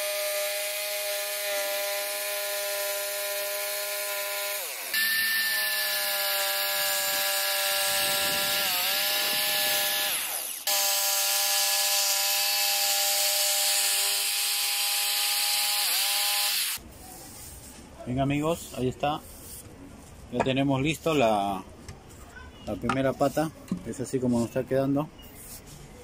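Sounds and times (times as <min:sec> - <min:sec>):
electric power saw whining: 0:00.0 - 0:16.8.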